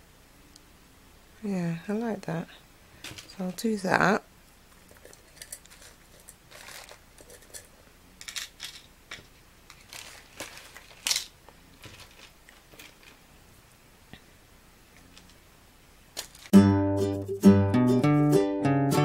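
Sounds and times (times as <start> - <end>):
plastic bags crinkling: 4.8 - 8.8, 9.7 - 13.2, 16.2 - 16.6.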